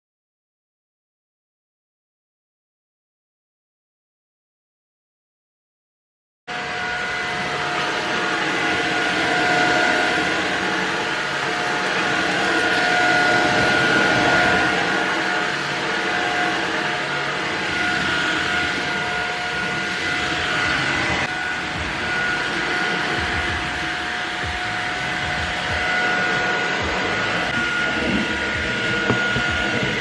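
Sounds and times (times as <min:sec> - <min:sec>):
vacuum cleaner running: 0:06.5 - 0:30.0.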